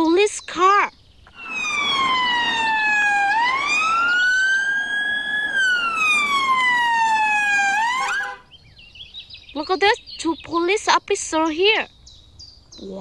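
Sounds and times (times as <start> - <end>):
emergency siren wailing: 1.3 - 8.5.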